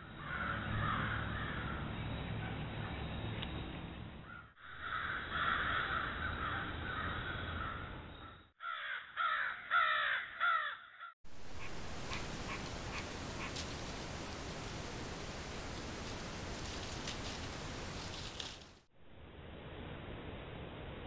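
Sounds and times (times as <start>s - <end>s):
crow cawing: 0.2s - 1.9s, 4.3s - 7.9s, 8.6s - 13.6s
steady microphone hiss: 11.3s - 21.0s.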